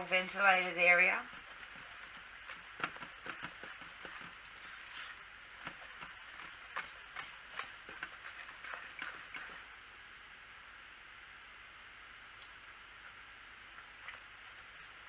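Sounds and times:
whisk clicking against crock: 0:01.3 - 0:04.7, 0:05.6 - 0:09.7.

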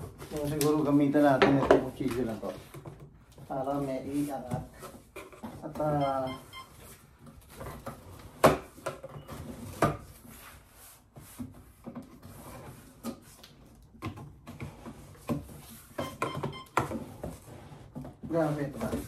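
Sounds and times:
cardboard rubbing and scraping: 0:00.0 - 0:05.8, 0:09.3 - 0:13.7, 0:16.9 - 0:19.0.

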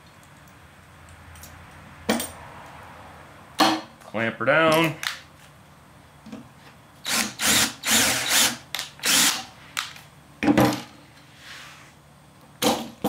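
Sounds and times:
cordless drill whirring: 0:07.0 - 0:09.5.

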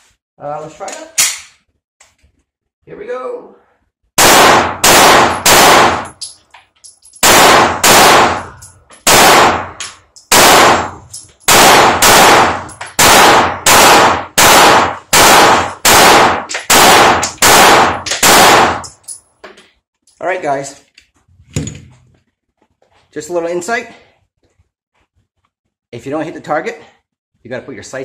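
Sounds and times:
pistol shots with echo: 0:04.2 - 0:06.2, 0:07.2 - 0:19.0.

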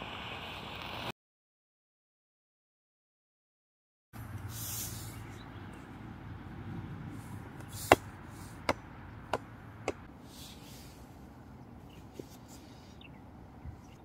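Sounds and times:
low outdoor hum: 0:04.2 - 0:14.0
rubber ball bouncing on concrete: 0:07.6 - 0:10.1.

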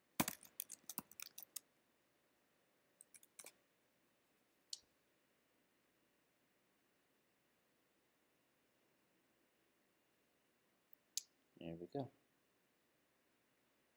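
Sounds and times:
computer keyboard typing: 0:00.1 - 0:01.6, 0:03.0 - 0:03.5.

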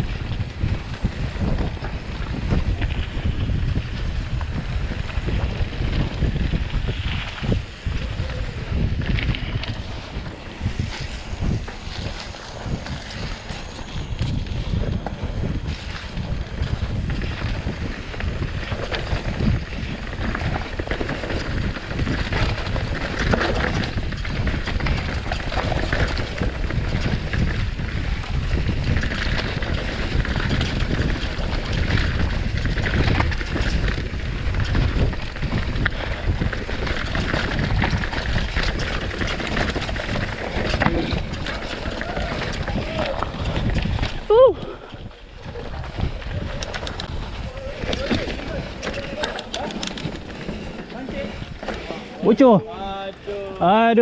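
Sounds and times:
bike rattling over bumps: 0:00.0 - 0:54.0
wind buffeting microphone: 0:00.0 - 0:54.0
tyres on dirt and leaves: 0:35.9 - 0:54.0.

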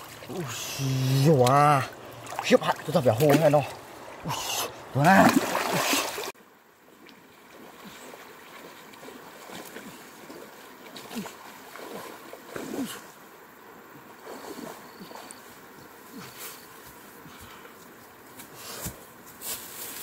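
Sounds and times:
water sloshing around wading person: 0:00.0 - 0:13.3, 0:13.9 - 0:17.4
loud water splash: 0:05.0 - 0:06.4.

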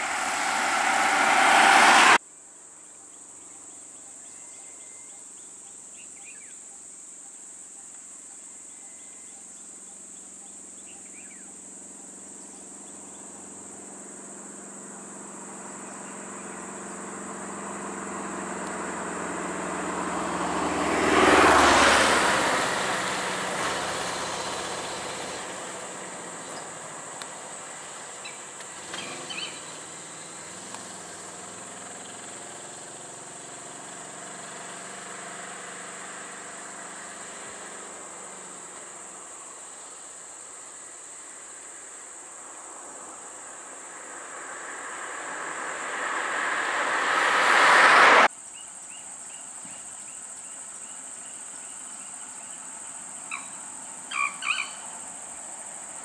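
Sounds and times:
vehicle driving past: 0:00.0 - 0:02.2, 0:15.4 - 0:27.0, 0:42.7 - 0:48.3
insect drone: 0:00.0 - 0:56.0
vehicle engines idling: 0:22.3 - 0:40.0.

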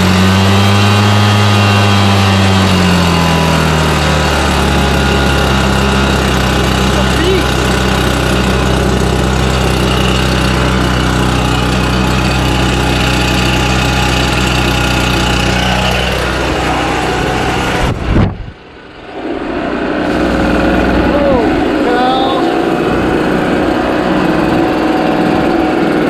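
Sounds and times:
leaf blower engine idling: 0:00.0 - 0:18.1, 0:19.4 - 0:26.0.

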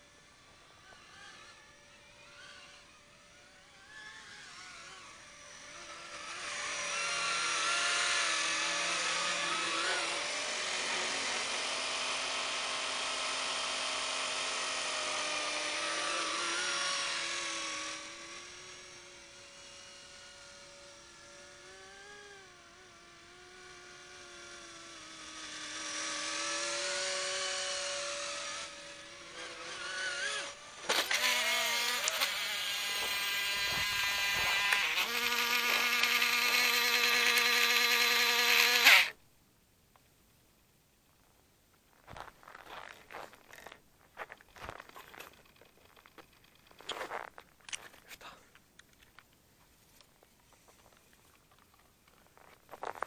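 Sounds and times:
model helicopter whine: 0:00.0 - 0:39.2.

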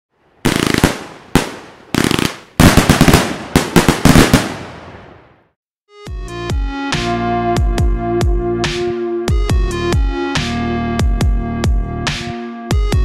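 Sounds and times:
fireworks crackling: 0:00.4 - 0:05.4.

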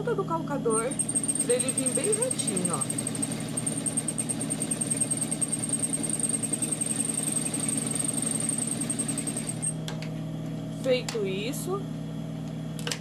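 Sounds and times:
sewing machine running: 0:00.7 - 0:09.8.

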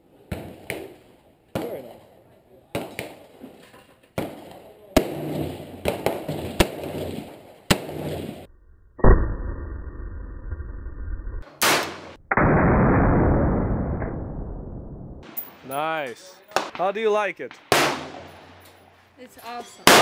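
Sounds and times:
rifle shots: 0:11.5 - 0:13.2, 0:17.6 - 0:18.6.

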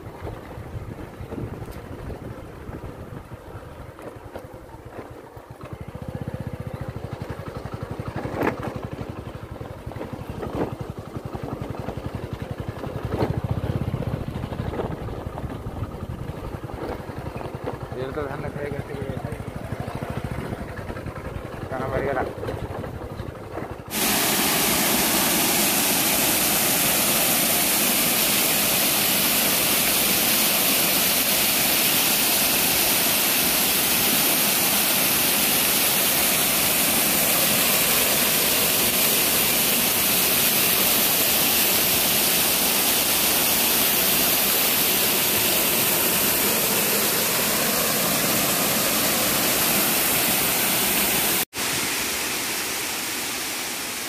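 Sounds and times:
waterfall rushing: 0:23.9 - 0:54.0.

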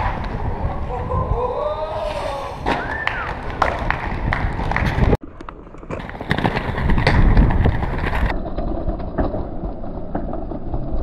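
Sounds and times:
skate wheels clicking and knocking: 0:02.7 - 0:11.0
inline skates grinding on ledge: 0:05.9 - 0:11.0.

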